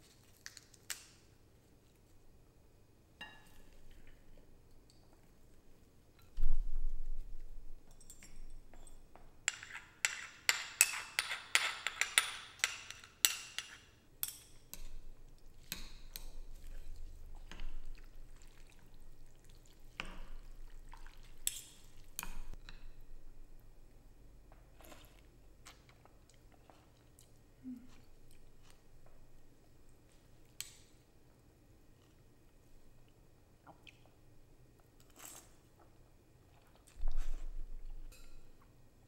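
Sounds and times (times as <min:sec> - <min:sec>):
spoon and chopsticks clinking bowl: 0:07.9 - 0:15.0.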